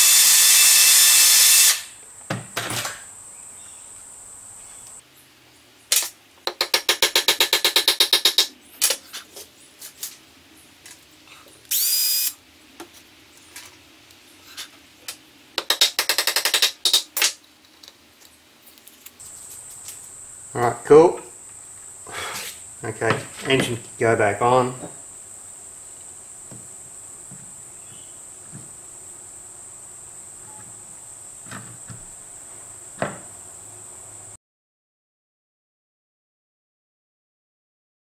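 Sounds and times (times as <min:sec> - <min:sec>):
cordless drill drilling: 0:00.0 - 0:01.9, 0:11.7 - 0:12.4.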